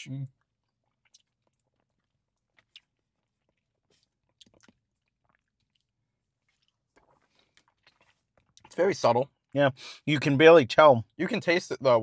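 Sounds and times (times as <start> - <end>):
people eating mouth sounds: 0.3 - 8.8.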